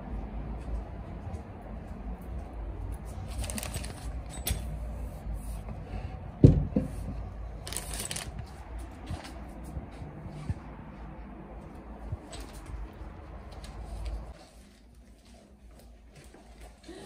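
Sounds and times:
plastic pouch crinkling: 3.3 - 4.1, 7.6 - 8.4.

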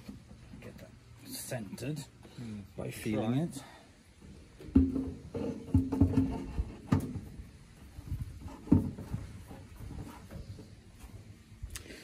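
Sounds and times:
metal knocking against tub: 4.6 - 7.1.

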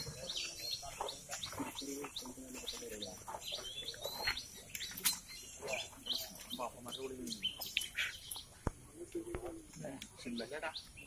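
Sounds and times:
birds chirping: 0.0 - 11.0.

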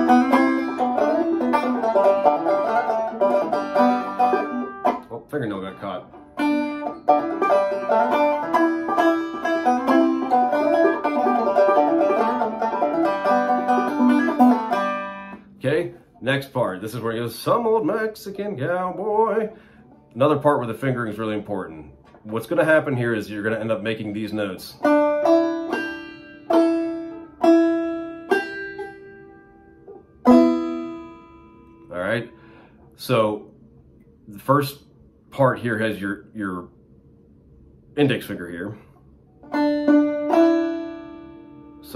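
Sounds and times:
banjo picking: 0.0 - 32.5, 39.4 - 41.9.

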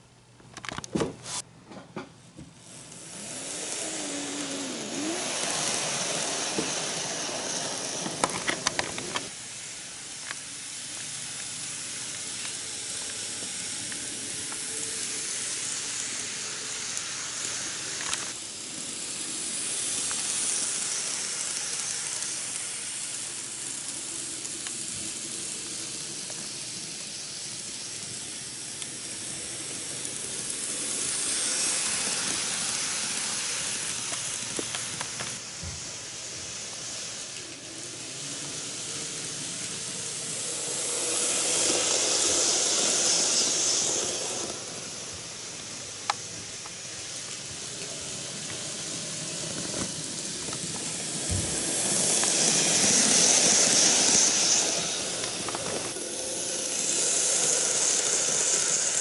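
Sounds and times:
model train wheels hissing: 0.9 - 1.5, 2.6 - 59.0.

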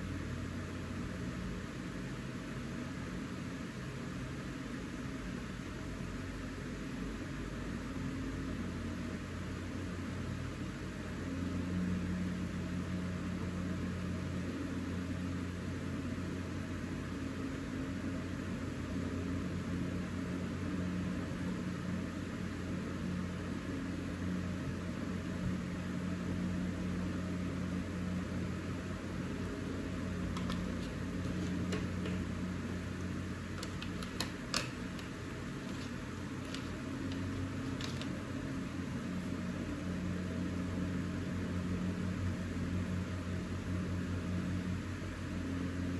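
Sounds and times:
low machine hum: 0.0 - 45.9
crayons clicking into plastic tray: 30.3 - 32.2, 33.6 - 38.2.

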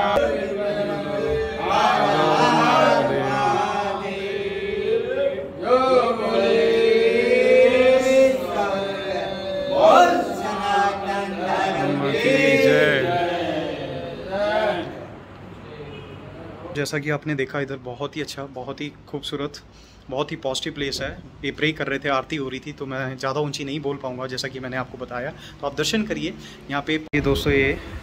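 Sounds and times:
devotional chanting and singing: 0.0 - 15.8.

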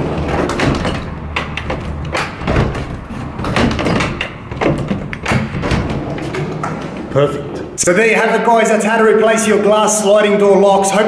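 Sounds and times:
door latch clicks and knocks: 0.3 - 7.0.

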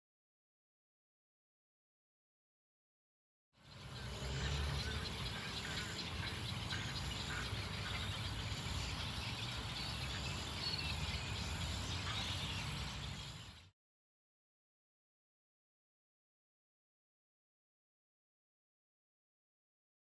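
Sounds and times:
insect chorus: 3.6 - 13.7.

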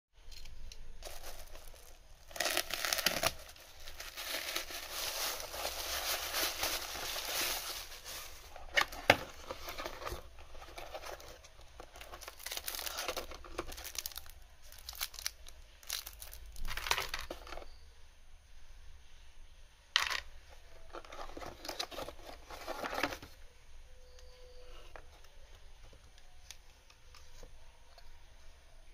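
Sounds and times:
plastic bag tearing and crinkling: 1.0 - 17.4.

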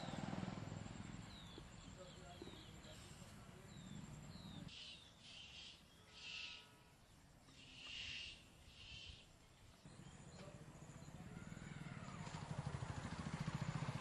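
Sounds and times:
bird calling: 1.1 - 12.2.

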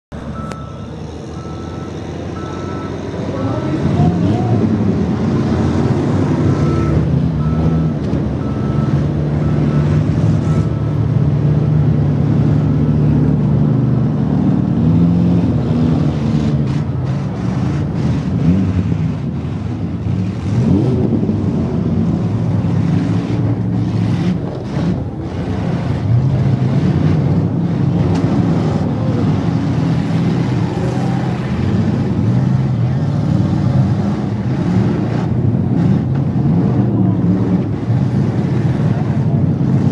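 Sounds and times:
car engines running and revving: 0.0 - 39.9
diesel loader engine: 0.1 - 39.9
faint beeping: 0.3 - 3.9.

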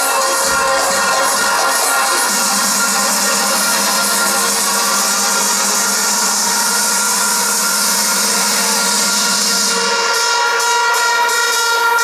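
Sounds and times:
electronic dance music: 0.0 - 12.0
sharp percussion hits: 0.0 - 12.0.

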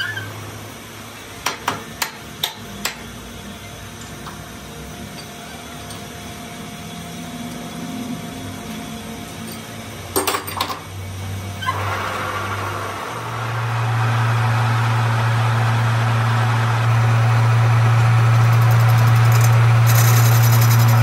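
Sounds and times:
lathe motor humming: 11.7 - 21.0.

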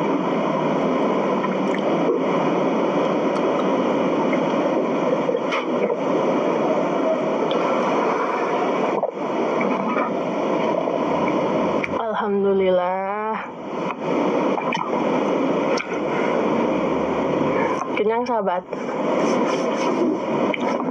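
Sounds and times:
steady hiss-like noise: 0.0 - 20.9.

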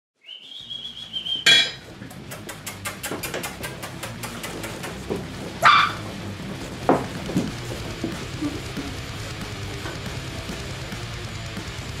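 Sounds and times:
claws clicking on wooden floor: 2.2 - 10.0
puppy yelping: 3.4 - 6.2
puppy squealing: 3.5 - 6.1.

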